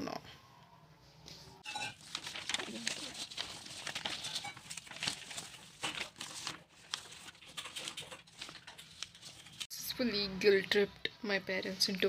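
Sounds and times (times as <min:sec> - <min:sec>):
paper rustling and crinkling: 0:01.6 - 0:09.7.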